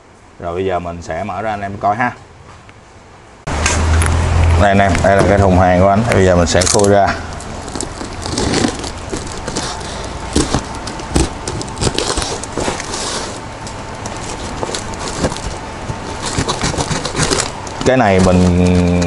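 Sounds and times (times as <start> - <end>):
cardboard scraping and crinkling: 6.5 - 13.5, 14.1 - 19.0
sharp clicks and knocks: 10.3 - 12.9.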